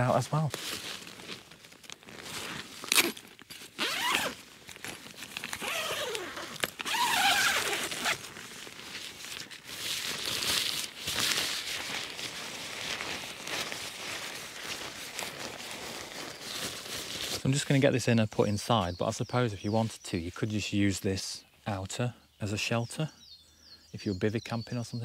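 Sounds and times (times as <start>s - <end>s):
tent fabric rustling: 0.0s - 17.5s
tent zip being pulled: 0.6s - 17.4s.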